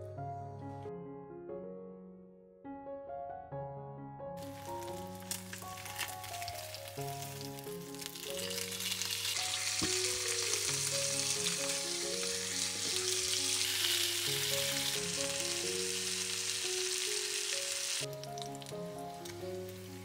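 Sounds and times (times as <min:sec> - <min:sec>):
meat sizzling on grill pan: 0:04.4 - 0:20.0.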